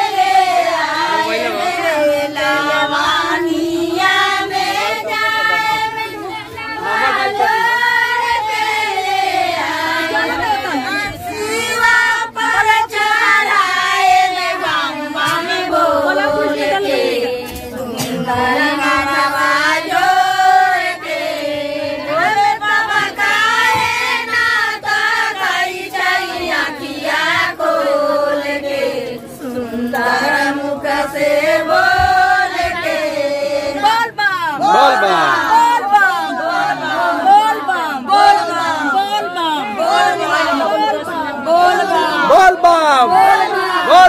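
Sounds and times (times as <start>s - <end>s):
women singing in unison: 0.0s - 44.0s.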